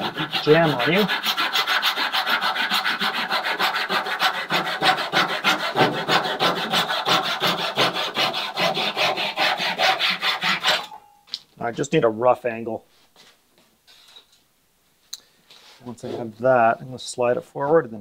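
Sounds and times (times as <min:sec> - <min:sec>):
handsaw cutting wood: 0:00.0 - 0:11.0.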